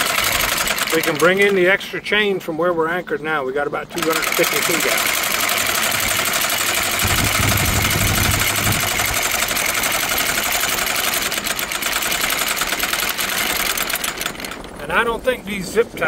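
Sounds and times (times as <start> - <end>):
anchor chain ticking on windlass: 0.0 - 1.8, 3.9 - 15.1
deep motor hum: 5.1 - 12.5.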